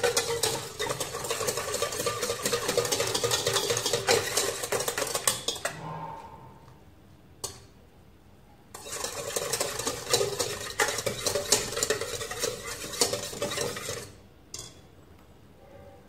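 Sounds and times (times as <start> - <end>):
whisk scraping in metal bowl: 0.0 - 5.9, 8.7 - 14.7.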